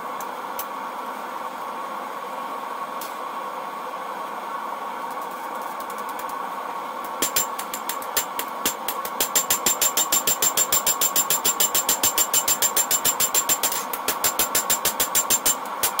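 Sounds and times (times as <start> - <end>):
steady hum: 0.0 - 16.0
hammer striking steel on anvil: 7.2 - 16.0.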